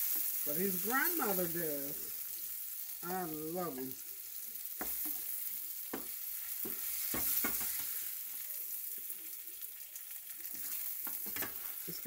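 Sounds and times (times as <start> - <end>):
vegetables sizzling in hot oil: 0.0 - 12.0
spatula scraping a pan: 5.9 - 8.4, 10.4 - 11.9.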